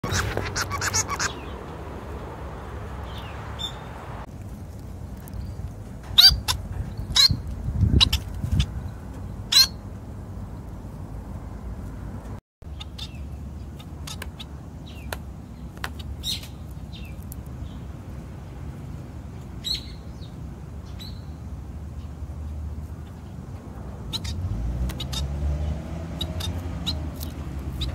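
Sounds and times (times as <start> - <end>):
finches chirping: 0.0 - 1.6.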